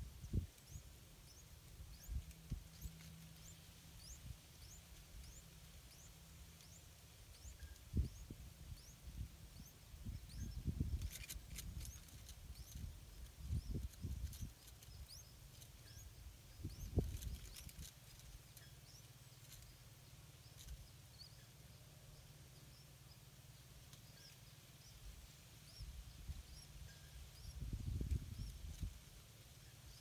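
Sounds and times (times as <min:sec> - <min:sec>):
soft rustling: 0:16.8 - 0:21.1.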